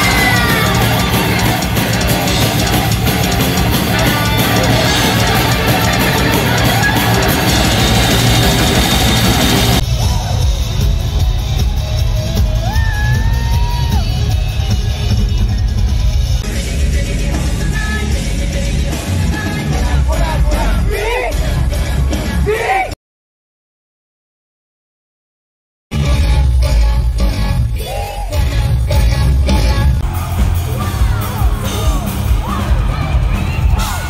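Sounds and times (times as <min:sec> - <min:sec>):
crowd yelling: 0:00.0 - 0:15.9, 0:18.9 - 0:23.0, 0:30.0 - 0:34.0
live heavy metal band: 0:00.0 - 0:22.9, 0:26.0 - 0:34.0.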